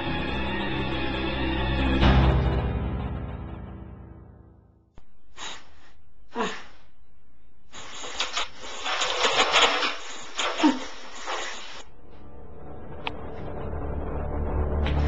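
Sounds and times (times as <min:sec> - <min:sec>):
scary music: 0:00.0 - 0:04.7, 0:11.8 - 0:15.0
steady hiss: 0:05.3 - 0:06.8, 0:07.7 - 0:11.8.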